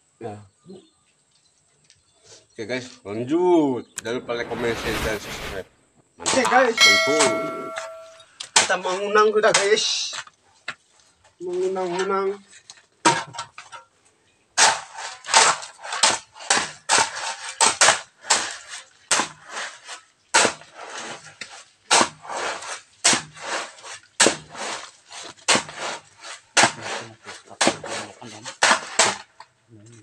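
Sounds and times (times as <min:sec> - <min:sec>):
sharp ringing knocks: 0:06.8 - 0:08.2.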